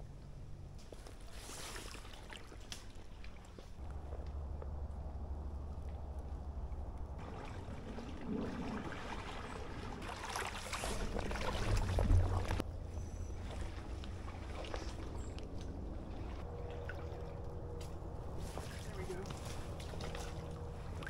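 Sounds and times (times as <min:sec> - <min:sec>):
water sloshing around waders: 0:01.2 - 0:21.0
low microphone rumble: 0:03.8 - 0:10.1, 0:10.7 - 0:21.0.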